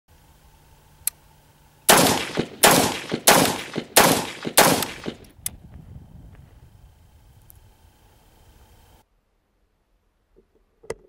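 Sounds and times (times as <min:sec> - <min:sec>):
rifle shots echoing: 0:01.9 - 0:05.3.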